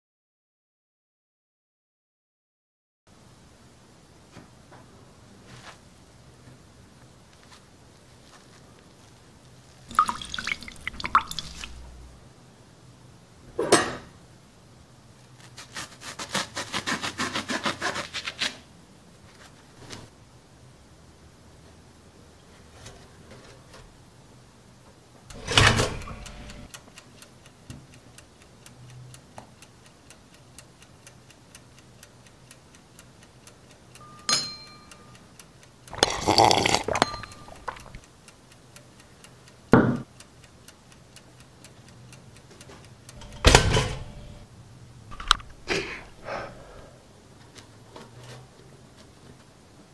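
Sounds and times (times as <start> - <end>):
toaster lever clack: 25.3 - 26.6, 43.2 - 44.4
toaster popping up: 25.3 - 26.6, 43.2 - 44.4
toaster ticking: 25.3 - 36.0, 37.1 - 44.5.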